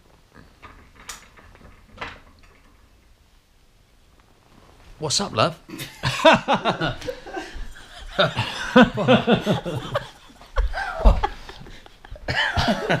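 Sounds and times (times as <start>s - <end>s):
people laughing: 5.7s - 13.0s.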